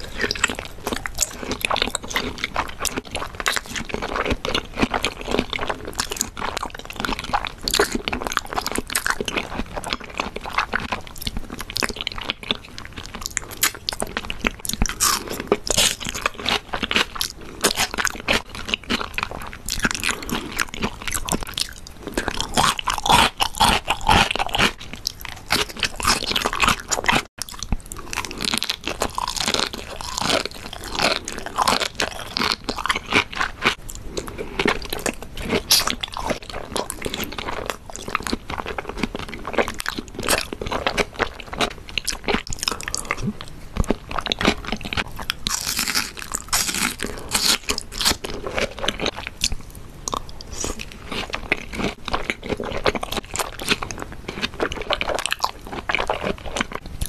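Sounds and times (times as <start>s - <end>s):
wet chewing and biting: 0.0s - 57.0s.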